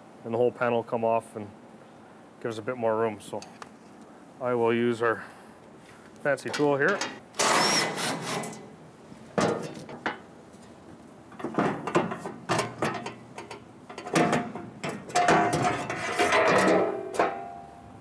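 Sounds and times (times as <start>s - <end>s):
metal panel clanking and scraping: 6.5s - 8.7s, 9.4s - 10.2s, 11.3s - 17.6s
metal panel ringing: 11.4s - 17.8s.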